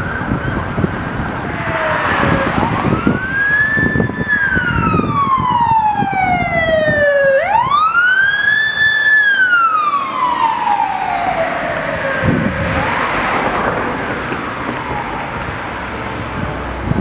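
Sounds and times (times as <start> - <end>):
electronic siren wailing: 0.0 - 13.5
passing traffic: 0.0 - 17.0.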